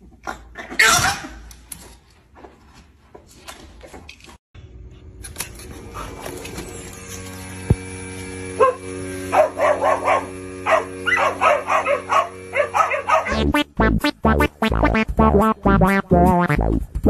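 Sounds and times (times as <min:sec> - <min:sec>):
dog barking: 0:08.6 - 0:13.5.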